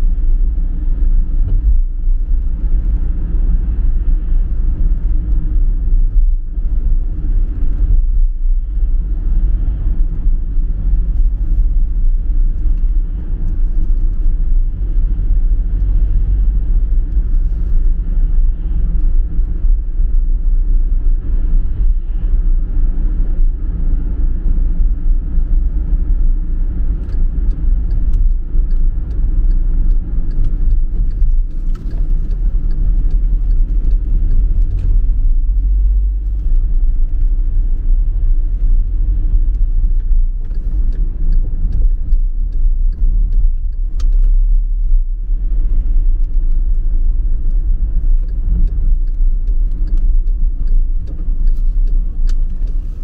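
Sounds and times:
car engine rumble: 0:00.0 - 0:53.0
tyres on a wet road: 0:00.0 - 0:53.0.

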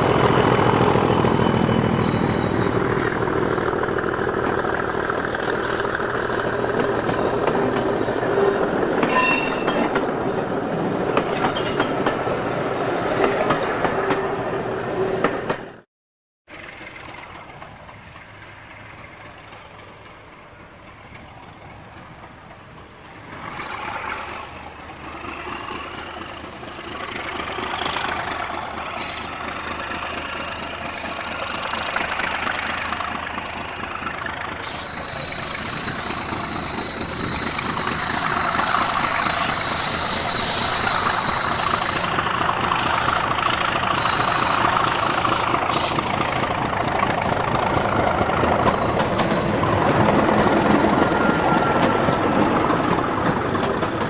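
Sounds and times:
high whistling tone: 0:00.0 - 0:03.2, 0:34.6 - 0:54.0
diesel locomotive engine: 0:00.0 - 0:15.9, 0:16.5 - 0:54.0.

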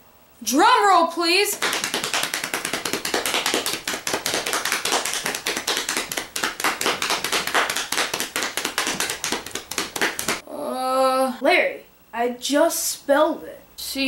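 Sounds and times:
hands patting drum roll: 0:01.5 - 0:10.4.

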